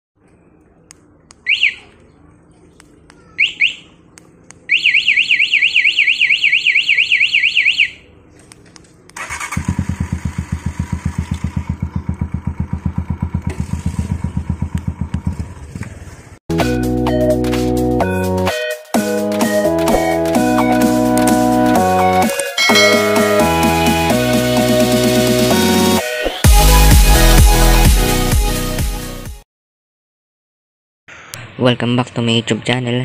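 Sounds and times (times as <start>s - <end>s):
motorcycle alarm chirps: 1.4s - 1.9s, 3.4s - 4.0s, 4.7s - 8.1s, 22.5s - 23.9s
motorcycle engine idling: 9.2s - 16.4s.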